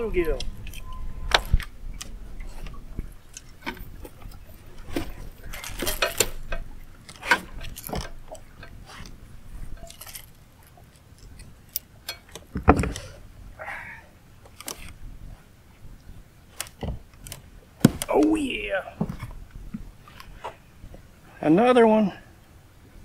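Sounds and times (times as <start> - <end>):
metallic clinks and knocks: 3.3 - 9.0, 9.6 - 12.4.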